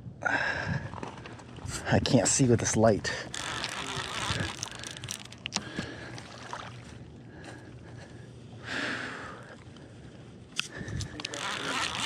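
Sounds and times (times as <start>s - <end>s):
water splashing and swirling: 3.2s - 7.2s.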